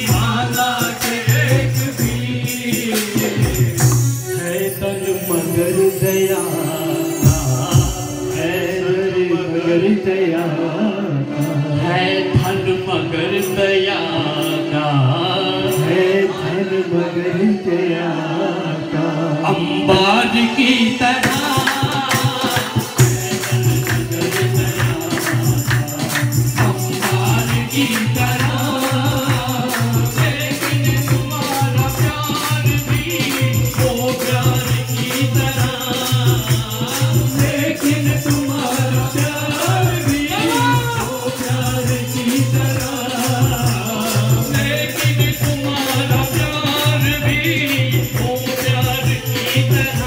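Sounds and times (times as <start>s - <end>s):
percussion beat: 0.0s - 9.3s, 19.9s - 50.0s
group singing along: 0.0s - 50.0s
men singing into microphones: 0.0s - 50.0s
hand-clapping: 21.2s - 50.0s.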